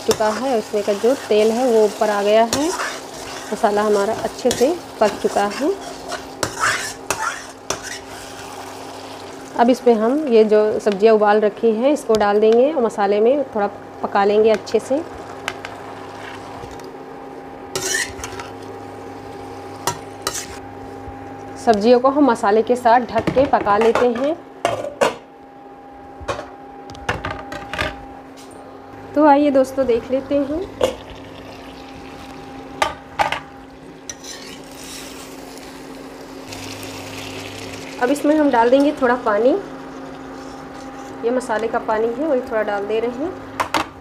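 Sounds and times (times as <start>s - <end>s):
cooktop humming: 0.0s - 44.0s
metal spatula scraping a pan: 2.4s - 8.6s, 17.8s - 18.5s, 20.2s - 20.6s, 34.1s - 35.2s.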